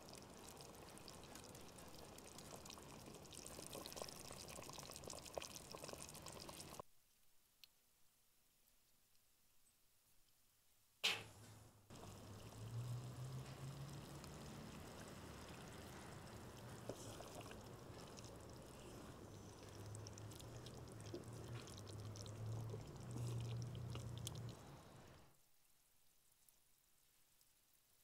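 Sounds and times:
stew sloshing while stirred: 0:00.0 - 0:06.8, 0:11.9 - 0:24.7.

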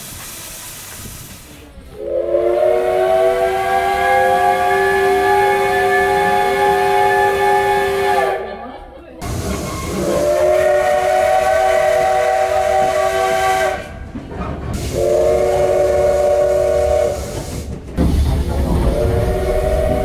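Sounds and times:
low rumble of train running: 0:00.0 - 0:20.0
steam locomotive whistle blasts: 0:02.0 - 0:08.5, 0:09.6 - 0:14.0, 0:14.8 - 0:17.6, 0:18.9 - 0:20.0.

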